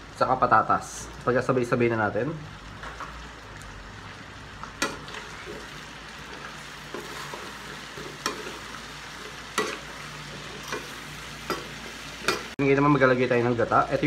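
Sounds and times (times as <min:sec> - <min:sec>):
food sizzling in a wok: 0:00.0 - 0:14.0
spoon stirring food: 0:06.9 - 0:12.6.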